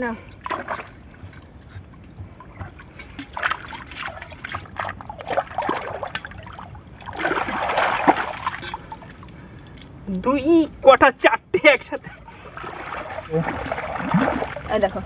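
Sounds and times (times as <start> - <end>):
hands splashing in shallow water: 3.0 - 9.9, 12.2 - 14.8.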